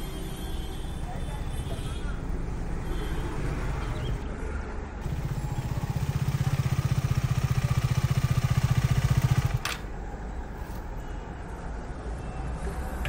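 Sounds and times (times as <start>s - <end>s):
motorcycle engine running: 5.0s - 9.8s.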